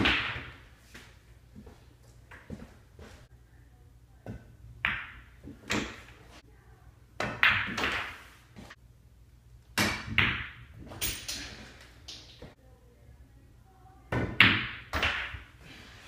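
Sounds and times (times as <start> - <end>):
pool balls knocking together: 0.0 - 0.7, 4.3 - 6.3, 7.2 - 8.4, 9.8 - 12.6, 14.1 - 15.6.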